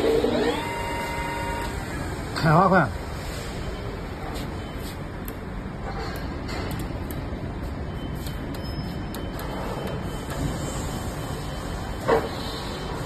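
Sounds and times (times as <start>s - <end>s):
milling machine humming: 0.0s - 2.4s.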